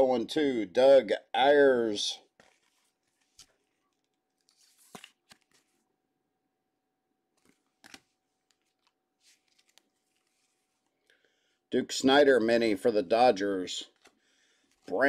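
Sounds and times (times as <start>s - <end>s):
trading cards clicking and rustling: 2.4s - 5.8s, 7.4s - 10.5s.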